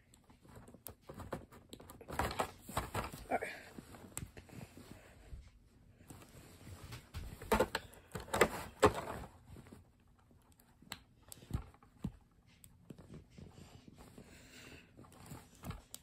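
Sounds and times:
plastic clicking and scraping: 0:00.0 - 0:03.2, 0:06.9 - 0:14.2, 0:15.0 - 0:16.0.

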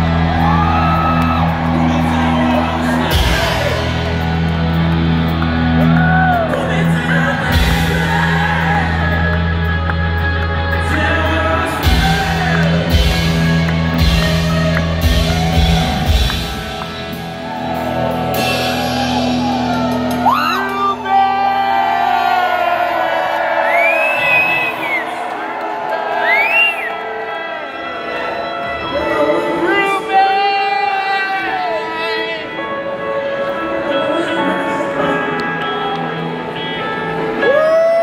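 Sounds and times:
audience whoops and shouts: 0:00.0 - 0:09.6, 0:10.9 - 0:29.2, 0:37.4 - 0:38.0
live rock band playing: 0:00.0 - 0:23.6
lead singer singing: 0:05.9 - 0:16.5, 0:28.8 - 0:38.0.

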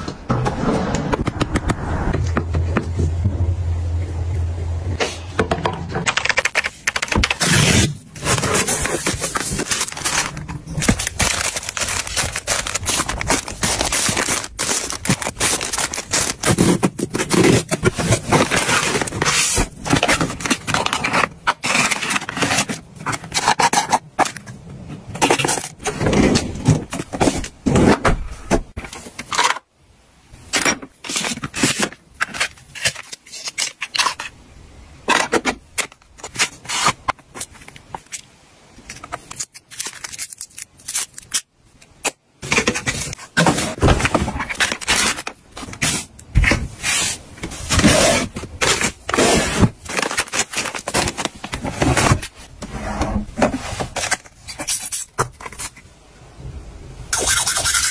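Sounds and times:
cardboard boxes being handled: 0:07.3 - 0:23.5, 0:42.4 - 0:55.8.

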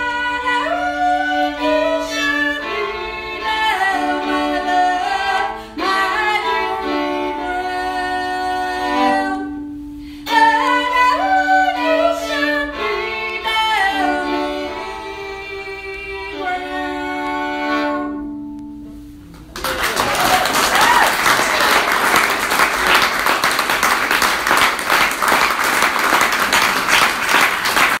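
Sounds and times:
fiddle tune with singing: 0:00.0 - 0:19.1
audience applauding: 0:19.4 - 0:28.0.

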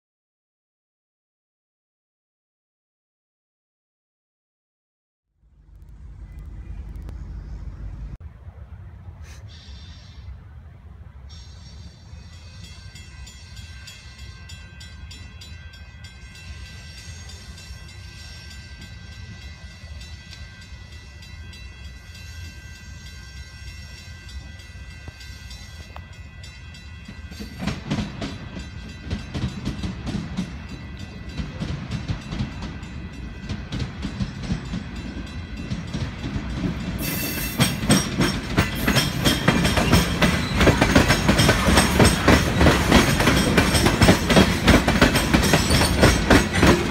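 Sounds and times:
freight cars rumbling past: 0:05.4 - 0:09.1
train wheels clattering over rail joints: 0:27.3 - 0:46.9.

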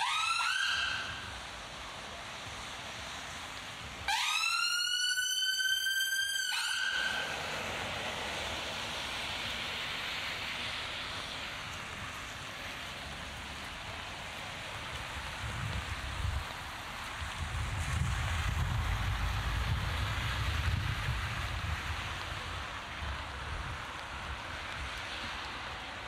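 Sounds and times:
emergency vehicle siren: 0:00.0 - 0:02.7, 0:03.8 - 0:16.0
steady rain hiss: 0:00.0 - 0:26.0.

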